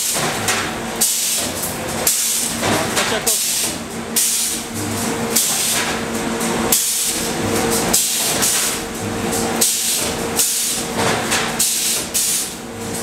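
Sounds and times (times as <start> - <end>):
steady machine hum: 0.0 - 13.0
welding machine hiss: 2.1 - 4.7, 9.6 - 10.8, 11.6 - 12.6.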